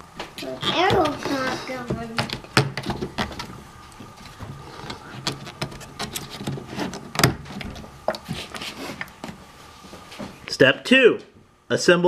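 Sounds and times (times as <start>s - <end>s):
faint rubbing: 4.0s - 10.4s.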